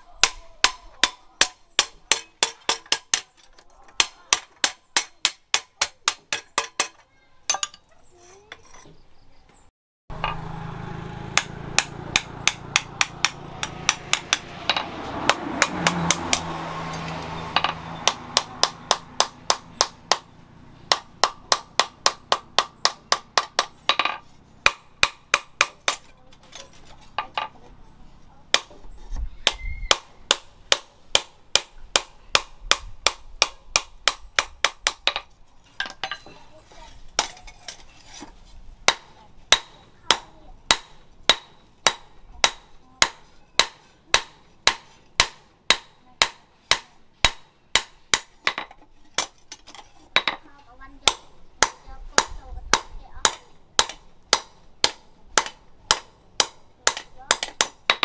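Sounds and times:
hammer striking steel on anvil: 38.9 - 49.3.

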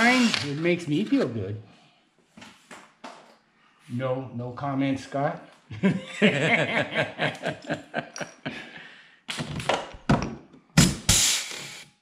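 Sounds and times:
pneumatic rivet gun: 0.0 - 0.6, 10.8 - 11.9
blast of exhaust air: 11.0 - 11.8
short air hisses: 11.1 - 11.8.

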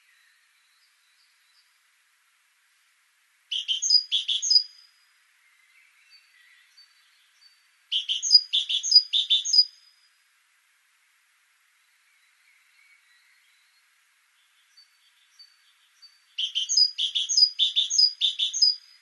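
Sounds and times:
faint bird chirps: 3.5 - 10.2, 11.7 - 19.0.

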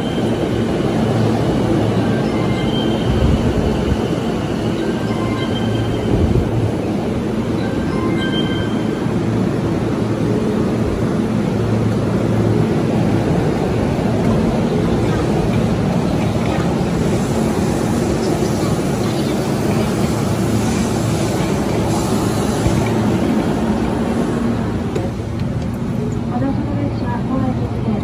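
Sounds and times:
electric train rumbling: 0.0 - 28.0
passengers moving: 0.0 - 28.0.

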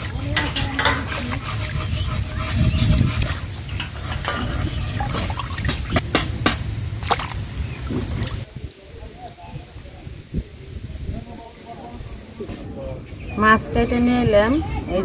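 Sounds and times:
water sloshing and splashing: 0.0 - 8.5
fish pieces splashing into water: 7.0 - 8.4.

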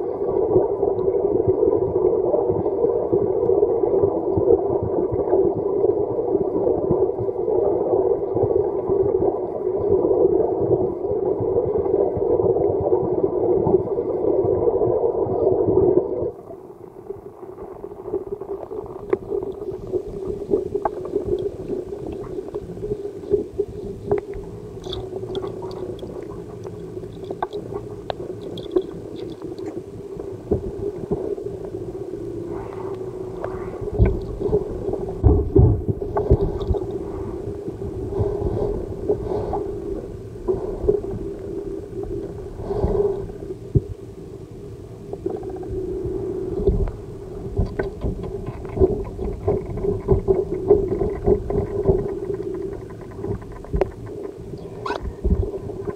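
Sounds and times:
underwater rushing hum: 16.4 - 55.9.

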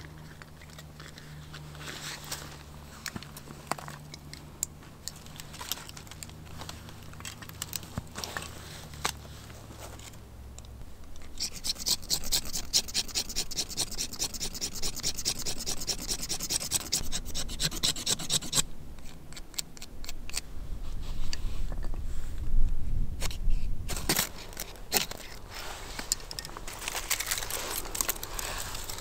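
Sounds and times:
scattered clicks and scrapes: 0.0 - 10.2, 11.1 - 20.5, 23.2 - 29.0
rhythmic rasping scrape: 11.4 - 18.6.

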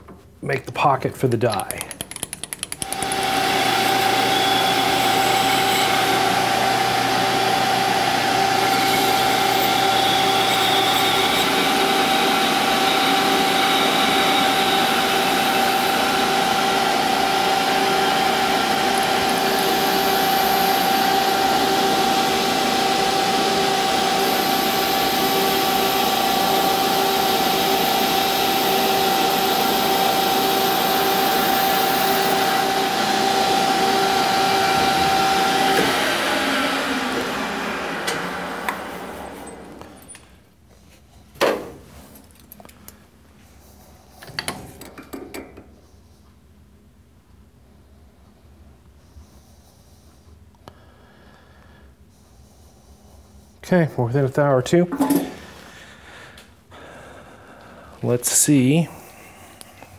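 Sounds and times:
metal lathe whining: 2.8 - 40.3.

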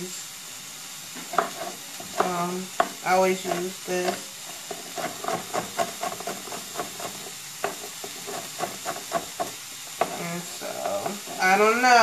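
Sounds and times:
shallots sizzling in a pan: 0.0 - 12.0
knife chopping on wooden board: 1.2 - 10.2.

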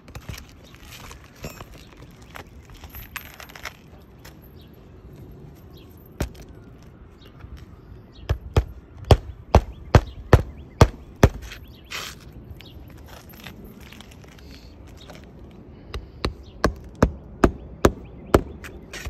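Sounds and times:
hammer nailing roof shingle: 15.9 - 19.0.

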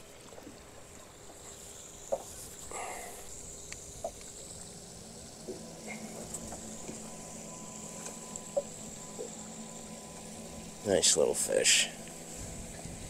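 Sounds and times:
water sloshing and lapping: 0.0 - 13.0
faint clicks and knocks: 3.6 - 4.4, 8.0 - 9.4.

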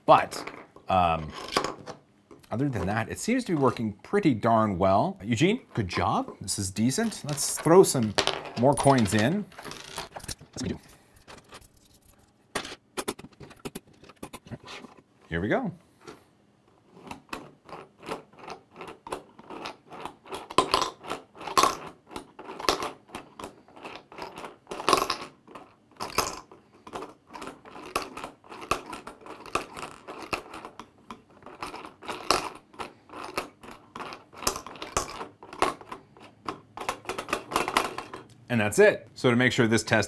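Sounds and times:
coins clinking in plastic sorter: 6.8 - 14.4, 17.4 - 38.3.

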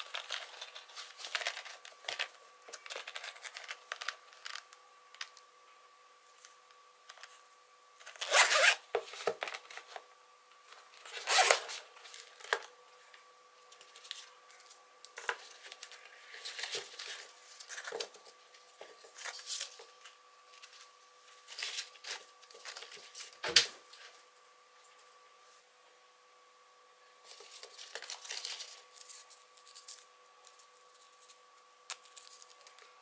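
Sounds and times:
rustling and handling: 0.0 - 5.5, 6.2 - 25.6, 27.2 - 33.0
zipper pulled open: 8.2 - 8.8, 11.2 - 11.7.

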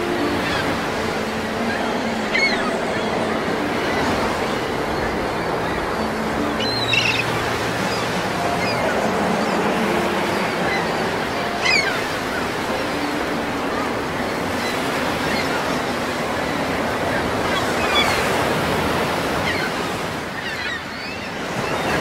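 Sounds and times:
choppy water: 0.0 - 22.0
wind: 0.0 - 22.0.

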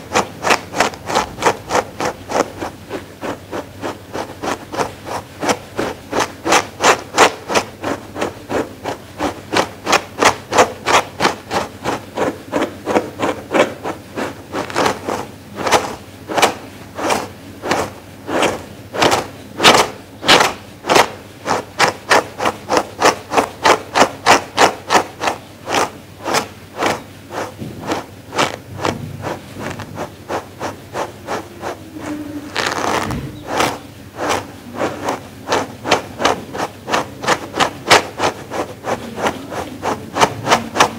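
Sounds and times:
brush scratching through fur: 0.0 - 40.9.

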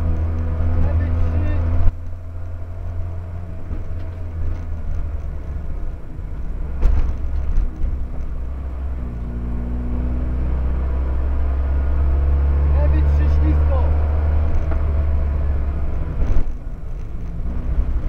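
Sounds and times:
car engine from inside: 0.0 - 18.0
thump: 6.8 - 7.2.

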